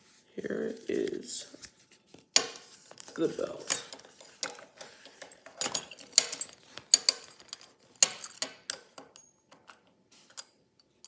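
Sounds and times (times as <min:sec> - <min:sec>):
metal belt buckle clinking: 0:03.6 - 0:11.0.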